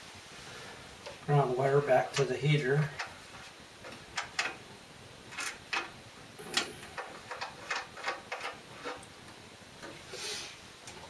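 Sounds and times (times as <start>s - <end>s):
small metal clicks and taps: 3.8s - 4.6s, 5.3s - 10.0s.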